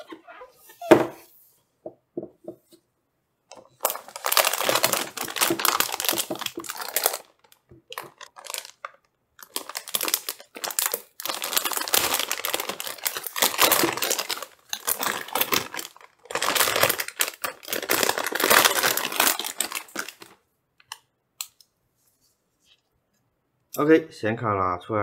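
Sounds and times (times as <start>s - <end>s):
packaging rustling and crinkling: 3.5s - 20.4s.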